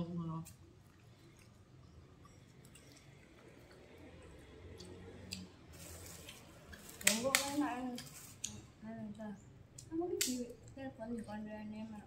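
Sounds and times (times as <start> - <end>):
chewing: 0.4 - 6.9.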